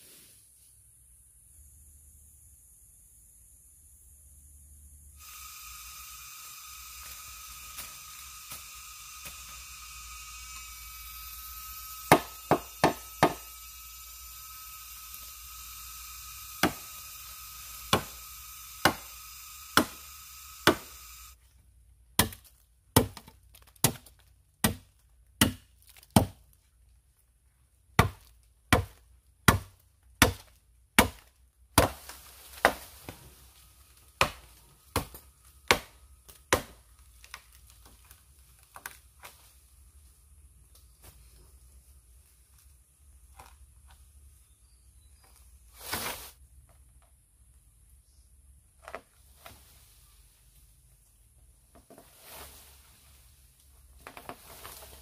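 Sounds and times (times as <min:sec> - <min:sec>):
machete chopping bamboo: 0:07.0 - 0:09.6, 0:12.0 - 0:13.6, 0:16.5 - 0:17.1, 0:17.7 - 0:21.0, 0:22.1 - 0:26.4, 0:28.0 - 0:33.3, 0:34.0 - 0:39.5.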